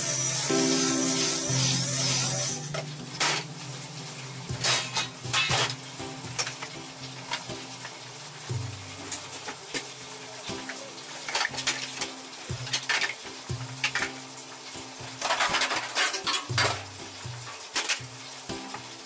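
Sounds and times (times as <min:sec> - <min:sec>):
metal trays clattering on steel: 0:04.6 - 0:05.8, 0:15.2 - 0:16.8.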